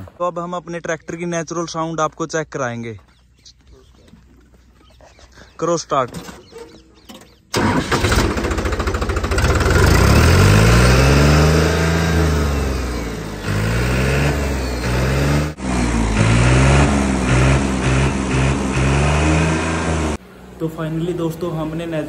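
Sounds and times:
tractor starter cranking: 0:06.2 - 0:11.0
diesel tractor engine revving: 0:07.5 - 0:22.0.

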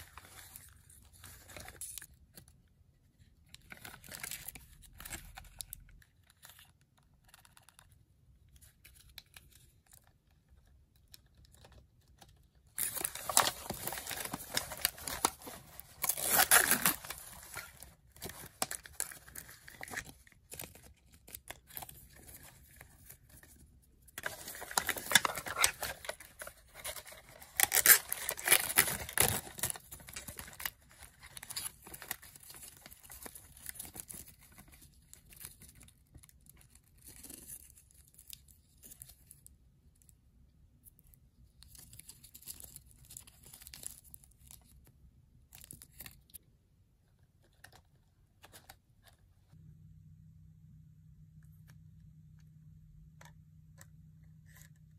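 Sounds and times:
plastic wrappers crinkling and tearing: 0:08.6 - 0:39.4.

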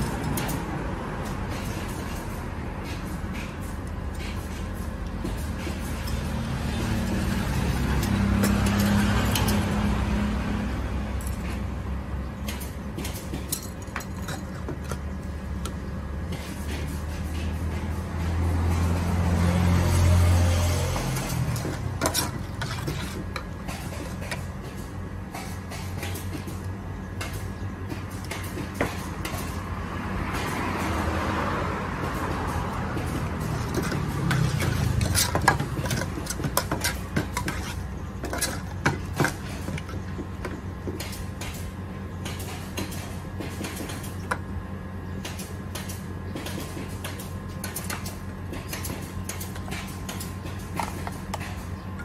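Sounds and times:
road traffic hum: 0:00.0 - 0:52.0
vehicle passing: 0:05.4 - 0:11.8, 0:16.9 - 0:22.2, 0:29.4 - 0:36.4
metal spoon scraping a pot: 0:21.1 - 0:24.4, 0:33.5 - 0:38.8.

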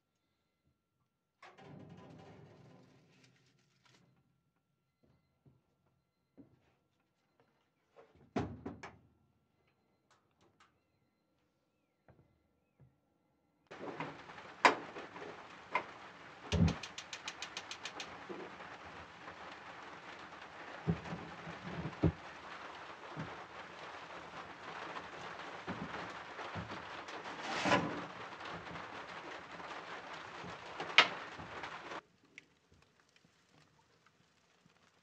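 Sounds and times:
knocks and thumps: 0:13.7 - 0:32.0
rain on an outdoor cover: 0:13.7 - 0:35.0.

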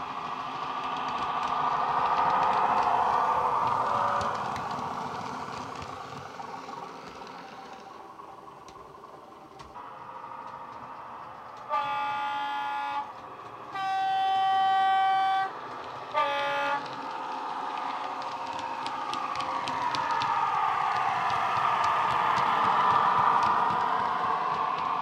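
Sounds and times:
train horn through small speaker: 0:11.6 - 0:16.9.

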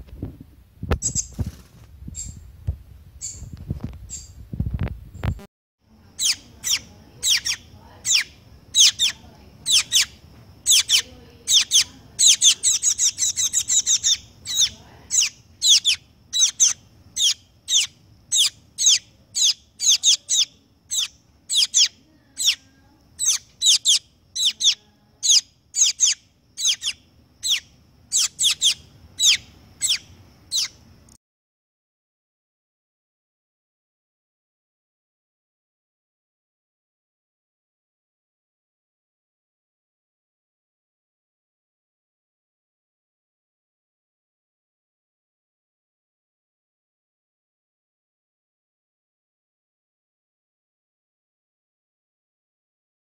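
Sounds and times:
low rustling and thumps: 0:00.0 - 0:05.5
fledgling bird begging chirps: 0:03.2 - 0:03.5, 0:06.2 - 0:30.9.

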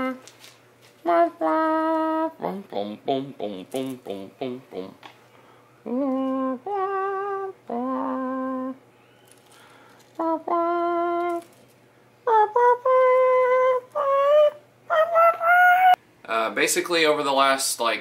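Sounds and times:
person humming: 0:00.0 - 0:00.3, 0:01.0 - 0:05.1, 0:05.8 - 0:09.4, 0:10.0 - 0:11.6, 0:12.2 - 0:16.0.

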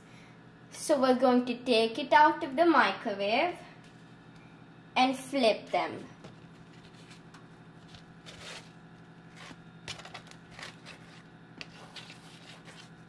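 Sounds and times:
papads scraping and rustling: 0:06.2 - 0:13.0.

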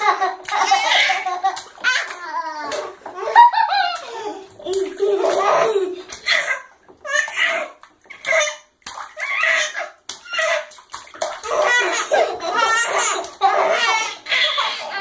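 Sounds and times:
baby laughing: 0:00.0 - 0:15.0
bathwater splashing: 0:00.0 - 0:15.0.

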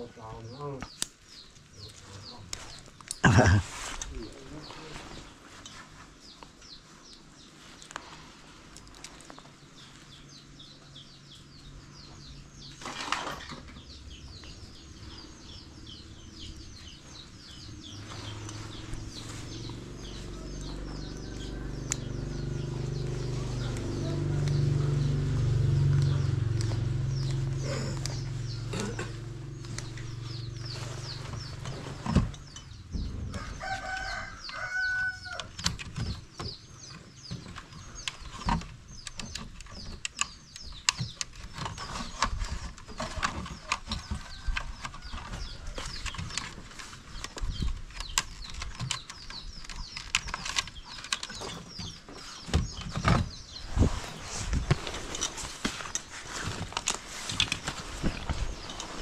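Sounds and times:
small birds chirping: 0:00.0 - 0:59.0
rooster crowing: 0:20.4 - 0:22.8, 0:33.3 - 0:35.6
router and cables handled: 0:54.1 - 0:59.0.

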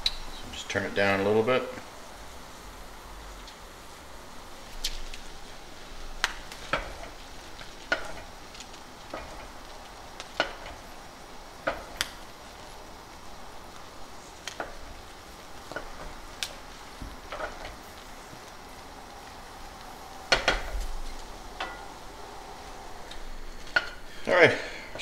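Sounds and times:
steady sizzle: 0:00.0 - 0:25.0
berries popping: 0:06.2 - 0:24.2
wooden spoon stirring in saucepan: 0:06.4 - 0:24.2.

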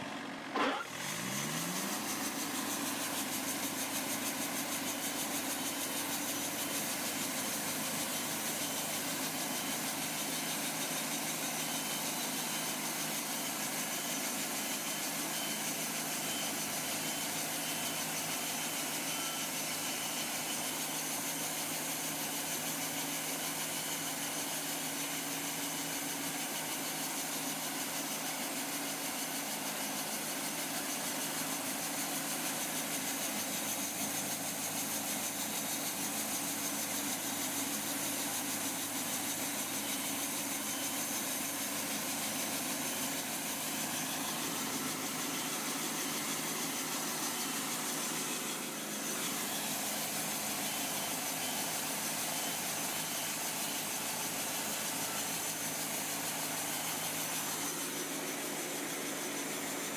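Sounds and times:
bandsaw sawmill running: 0:00.0 - 0:59.9.

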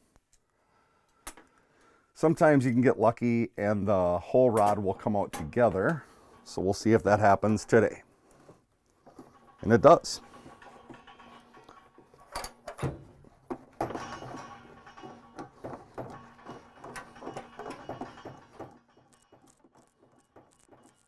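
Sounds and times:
metal clicks and knocks: 0:04.5 - 0:21.0.

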